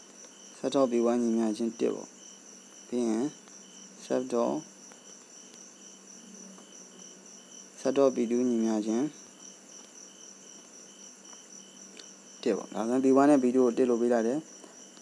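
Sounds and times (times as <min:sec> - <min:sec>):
crickets chirring: 0:00.0 - 0:15.0
person's voice: 0:02.9 - 0:03.4, 0:07.8 - 0:09.2, 0:12.4 - 0:14.4.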